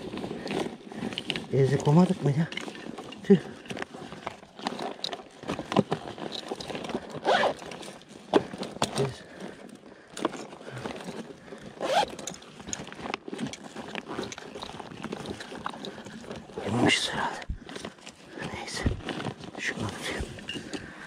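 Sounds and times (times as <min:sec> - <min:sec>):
backpack zipper: 0:00.0 - 0:09.1, 0:10.4 - 0:17.0
rustling and scraping of gear: 0:00.0 - 0:21.0.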